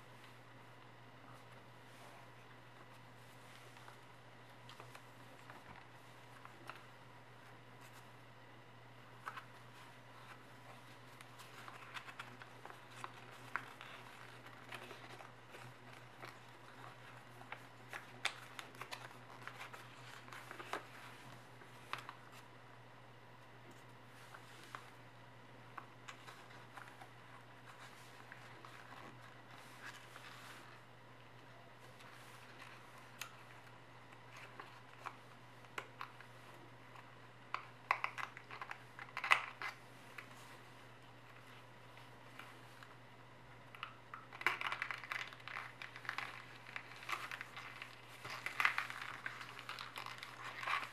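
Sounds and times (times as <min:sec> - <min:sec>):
steady low hum: 0:00.0 - 0:50.9
paper rustling and crackling: 0:09.2 - 0:22.5, 0:25.8 - 0:30.8, 0:31.8 - 0:40.7, 0:44.1 - 0:50.9.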